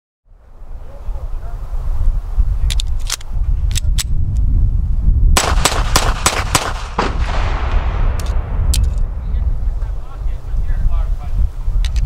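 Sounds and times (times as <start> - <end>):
wind rumble on microphone: 0.3 - 12.0
magazine clicking into pistol: 2.7 - 4.1
pistol shots: 5.4 - 9.2.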